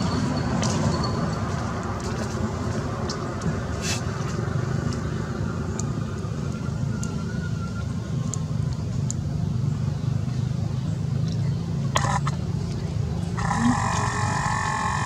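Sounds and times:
low outdoor rumble: 0.0s - 15.0s
high steady tones: 13.4s - 15.0s.

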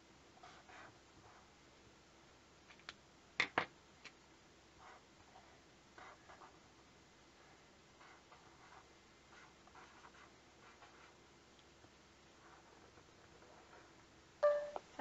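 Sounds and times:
marker writing on paper: 8.0s - 11.2s.

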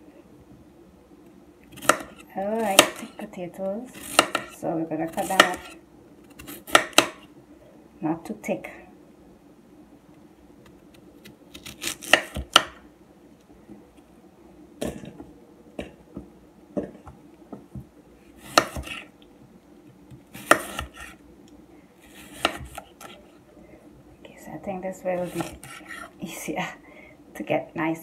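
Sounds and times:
knife chopping potatoes: 1.7s - 3.2s, 3.9s - 7.3s, 11.2s - 12.8s, 18.4s - 19.1s, 20.1s - 21.2s, 22.0s - 23.2s, 25.2s - 26.1s.

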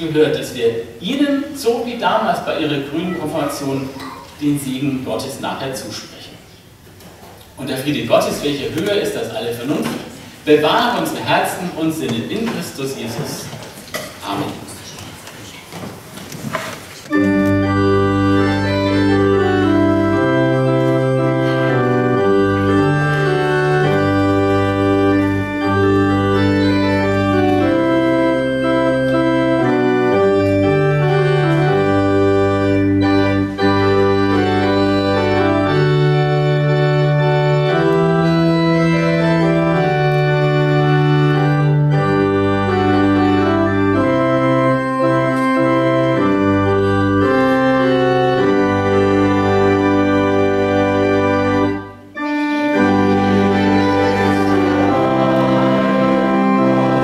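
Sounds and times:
church organ sustained chords: 17.1s - 57.0s.

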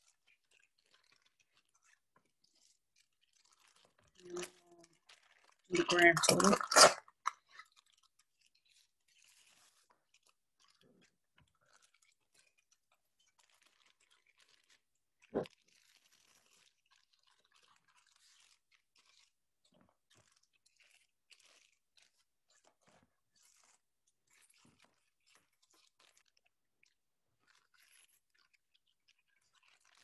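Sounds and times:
plastic bag crinkling: 3.4s - 7.9s.

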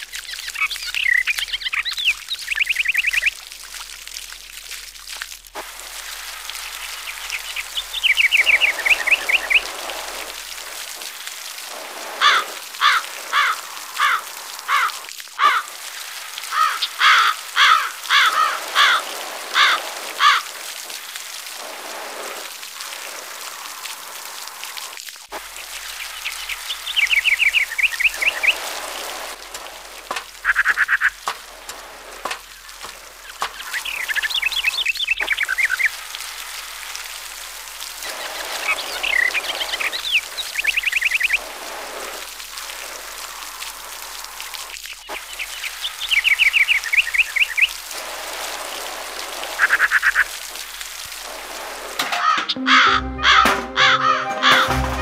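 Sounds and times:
water stream spattering onto mud: 0.0s - 52.6s, 54.5s - 55.0s
loud bird call notes: 52.5s - 55.0s.

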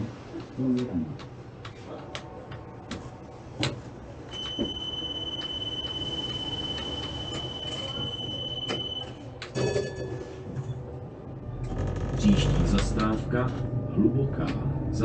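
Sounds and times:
steady high-pitched tone: 4.3s - 10.4s.

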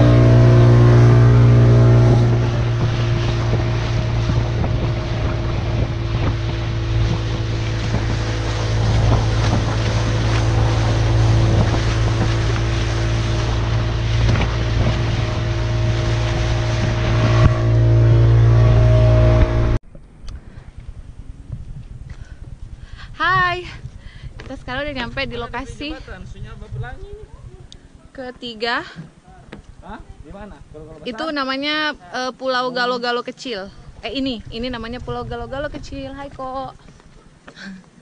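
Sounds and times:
water rushing: 0.0s - 19.8s
motorboat engine humming: 0.0s - 38.0s
wind: 0.0s - 38.0s.

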